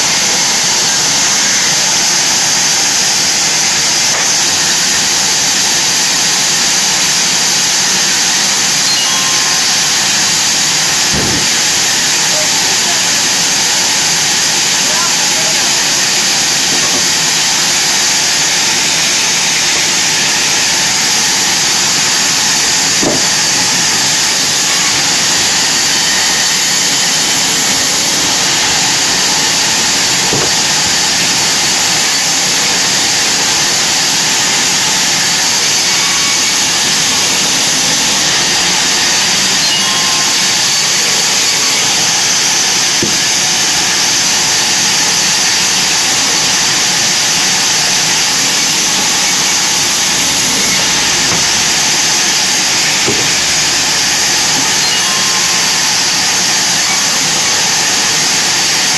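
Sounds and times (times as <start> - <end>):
band saw ripping wood: 22.6 - 24.1, 28.6 - 31.4, 50.6 - 53.8.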